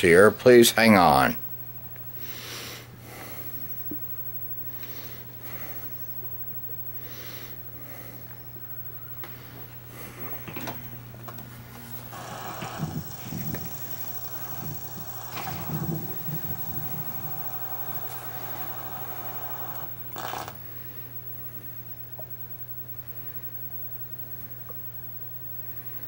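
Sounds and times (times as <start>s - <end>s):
low electrical hum: 0.0s - 26.0s
videotape hiss: 8.2s - 26.0s.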